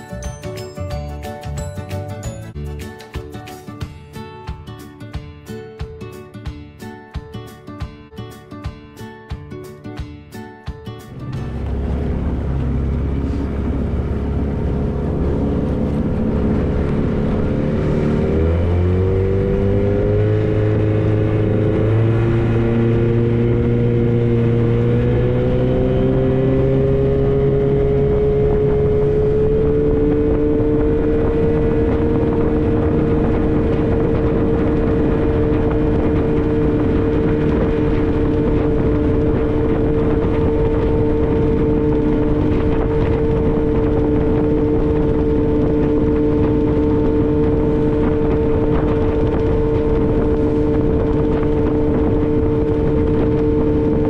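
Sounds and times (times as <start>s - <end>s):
outboard motor running: 11.2s - 54.0s.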